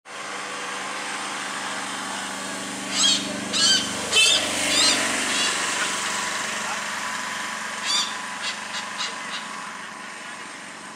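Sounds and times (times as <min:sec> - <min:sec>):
hornbill calling: 0:02.8 - 0:10.9.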